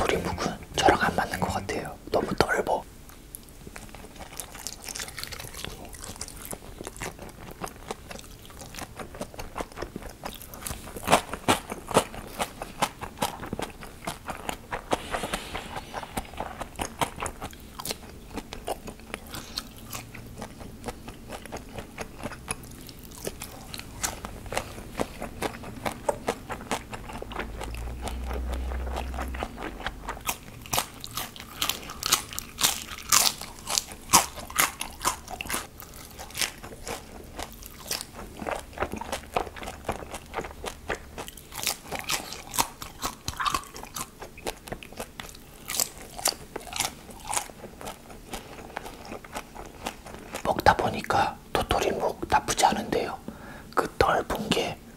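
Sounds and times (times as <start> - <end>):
chewing: 3.1 - 53.2
crunching bites into fried food: 15.9 - 50.9.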